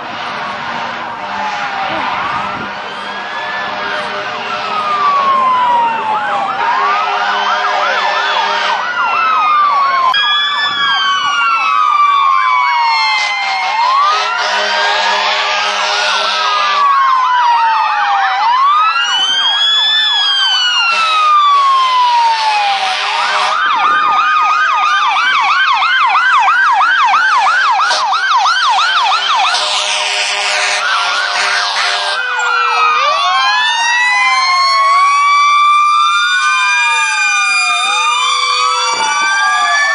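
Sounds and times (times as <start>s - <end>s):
fire engine sirens wailing: 0.0s - 39.9s
horn blasts: 0.1s - 5.1s, 6.6s - 8.9s, 13.2s - 16.9s, 20.8s - 23.8s, 27.7s - 28.3s, 28.9s - 32.8s.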